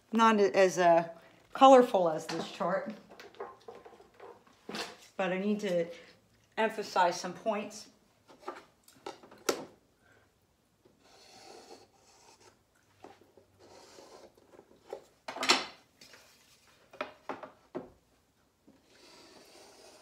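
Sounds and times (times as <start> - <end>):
scratchy drawing strokes on board: 11.0 - 12.6, 13.6 - 14.4, 18.8 - 20.0.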